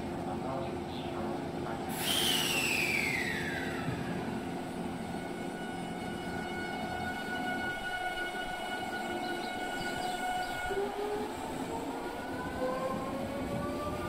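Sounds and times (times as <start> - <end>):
train running rumble: 0.0 - 14.0
electric train whining: 1.2 - 14.0
sudden hiss: 1.9 - 4.0.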